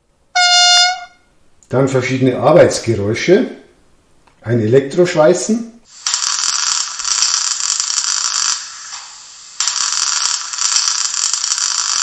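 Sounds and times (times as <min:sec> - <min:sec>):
arc welding crackling hiss: 0:05.9 - 0:12.0.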